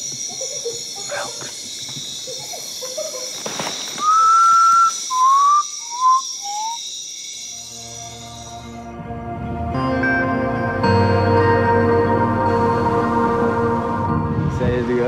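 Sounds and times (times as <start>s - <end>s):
night insects chirring: 0.0s - 9.2s
person whistling: 4.0s - 6.9s
soft ambient music: 7.6s - 15.0s.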